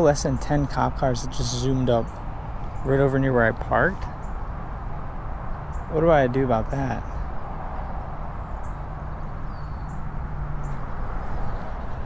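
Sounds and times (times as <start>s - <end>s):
high bird chirps: 8.4s - 10.8s.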